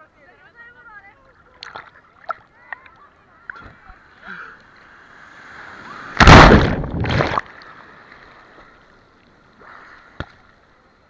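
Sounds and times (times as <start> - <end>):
ocean wave crashing: 5.0 - 8.0.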